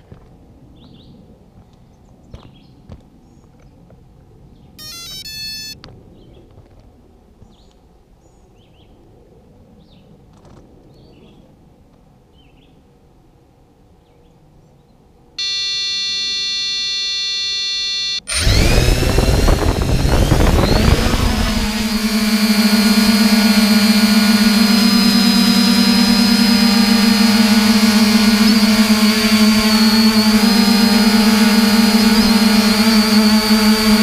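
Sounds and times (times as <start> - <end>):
long electronic tone: 4.8 - 5.8, 15.4 - 34.0
stepped electronic beeps: 4.8 - 5.8, 15.4 - 34.0.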